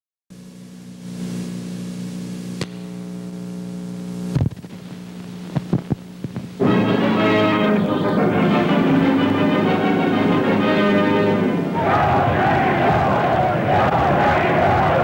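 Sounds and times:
electrical mains hum: 0.3 - 15.0
tape hiss: 0.3 - 15.0
pop and crackles: 2.6 - 3.0, 4.3 - 6.5
music: 6.6 - 15.0.

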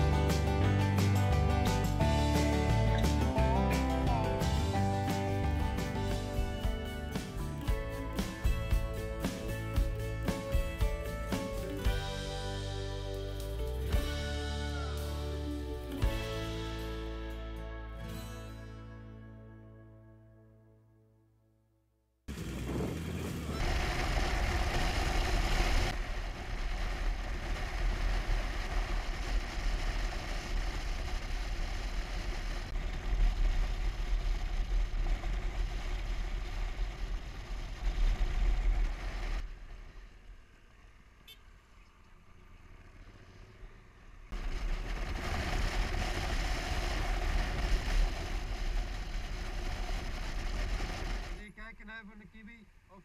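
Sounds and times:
rushing wind: 22.3 - 39.6, 44.3 - 51.4
motorcycle engine: 22.3 - 51.6.

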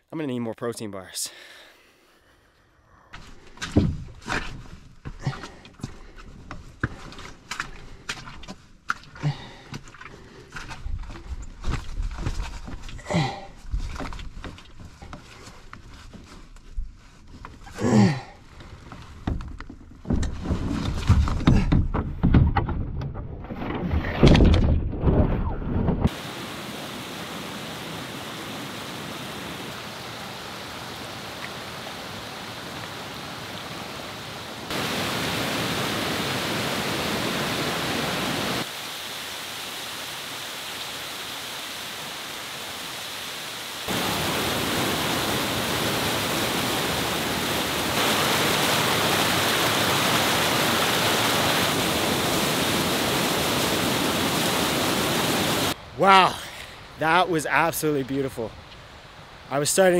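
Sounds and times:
knocks of canoe being carried: 3.2 - 17.8, 18.4 - 26.1
water rushing over rocks: 26.1 - 56.4.

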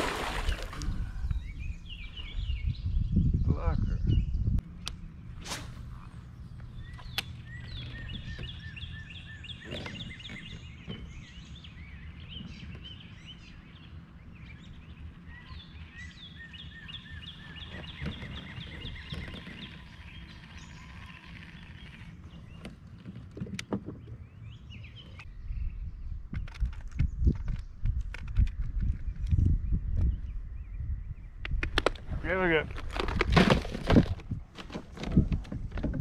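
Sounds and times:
songbird chirping: 0.4 - 28.0.

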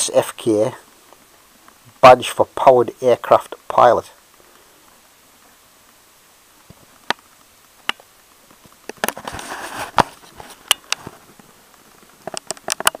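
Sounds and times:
brief rustle: 8.9 - 11.4.

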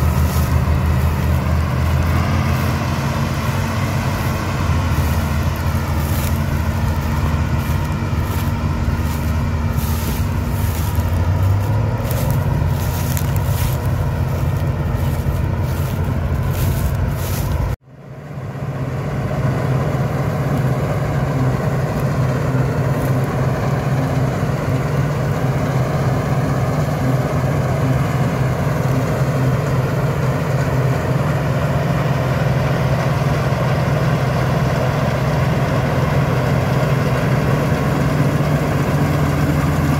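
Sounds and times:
crackles: 0.0 - 17.8
combine harvester droning: 0.0 - 39.9
tractor diesel engine running: 0.0 - 39.9.

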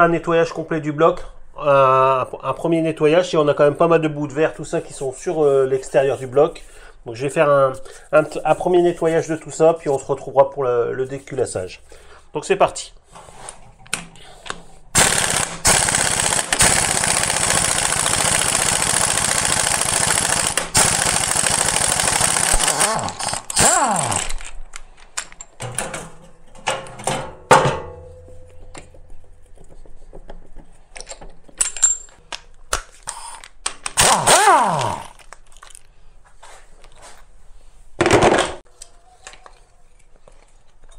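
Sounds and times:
impact wrench hammering: 15.0 - 24.4, 33.9 - 35.1
wrench motor spinning up: 15.0 - 24.6, 33.0 - 35.3.

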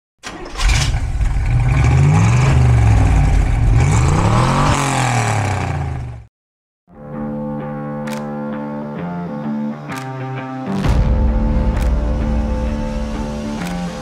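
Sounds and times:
car engine revving: 0.3 - 6.3.

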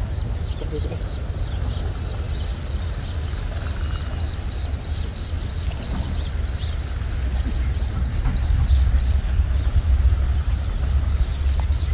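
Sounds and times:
low rumble: 4.1 - 11.9.

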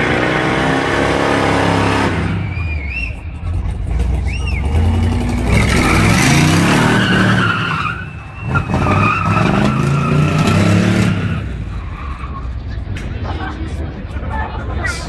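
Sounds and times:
car engine revving hard: 4.8 - 7.6
tyres squealing: 5.5 - 12.5.

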